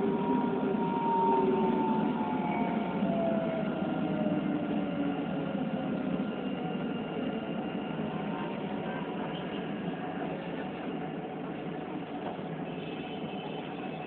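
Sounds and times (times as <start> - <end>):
tram running rumble: 0.0 - 14.0.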